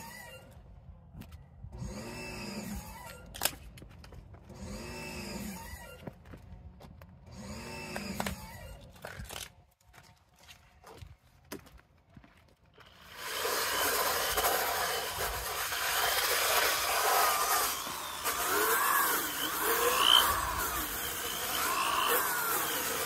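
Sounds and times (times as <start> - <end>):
drill brush scrubbing rubber mat: 12.8 - 23.0.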